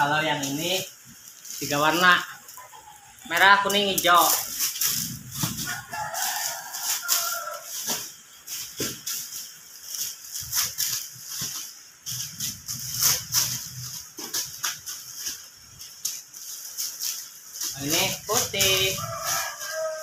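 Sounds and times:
bread rustling and crinkling: 0:00.0 - 0:20.0
chickens calling: 0:01.4 - 0:11.5.

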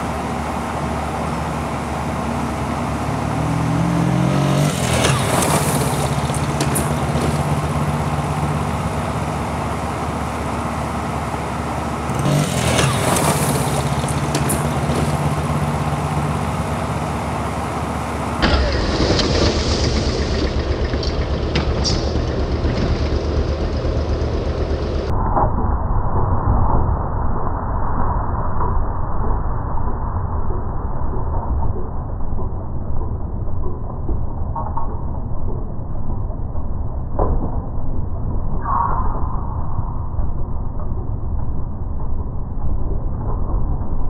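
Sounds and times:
low steady engine running: 0:00.0 - 0:25.1
small engine vehicle revving past: 0:01.1 - 0:25.1.

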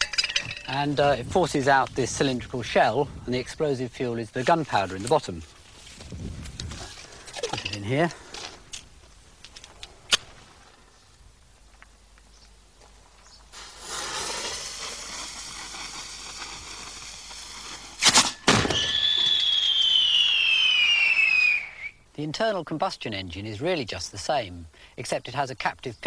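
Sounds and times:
fuse fizzing: 0:13.5 - 0:18.0
firework mortar bang: 0:13.6 - 0:21.5
falling high whistle: 0:18.5 - 0:22.0.

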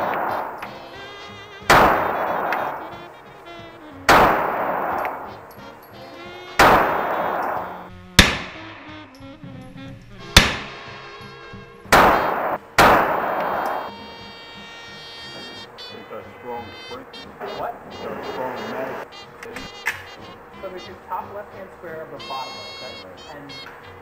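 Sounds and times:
pistol shots with echo: 0:00.0 - 0:03.3, 0:04.1 - 0:09.0, 0:10.3 - 0:11.0, 0:11.8 - 0:14.0.

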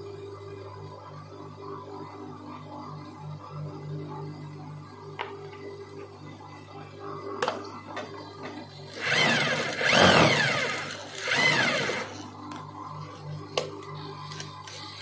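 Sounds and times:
industrial sewing machine stitching: 0:08.9 - 0:12.2.

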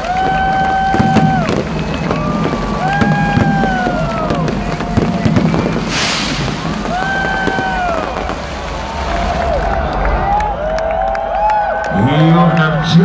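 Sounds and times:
fireworks popping and crackling: 0:00.0 - 0:10.4
low rumble: 0:00.8 - 0:11.6
short hiss: 0:05.8 - 0:06.6.

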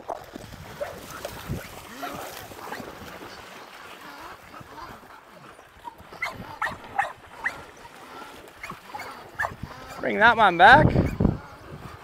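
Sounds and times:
dogs splashing through water: 0:00.0 - 0:12.0
dogs barking: 0:05.8 - 0:07.8, 0:08.6 - 0:10.2.

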